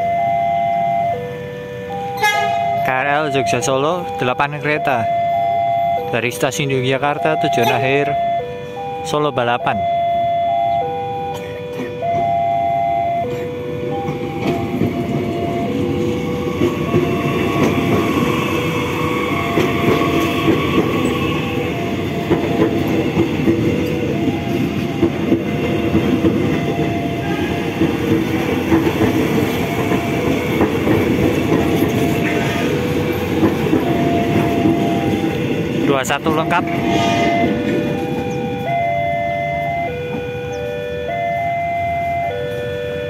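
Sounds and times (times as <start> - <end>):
train rumbling past: 9.8 - 42.7
wheels clacking over rail joints: 13.2 - 38.8
steady electronic tone: 33.8 - 40.8.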